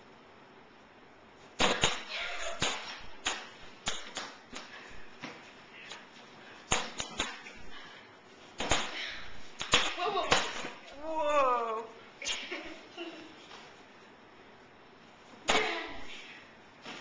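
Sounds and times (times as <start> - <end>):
exercise ball smacking: 1.6 - 5.4, 6.7 - 7.6, 8.6 - 10.8.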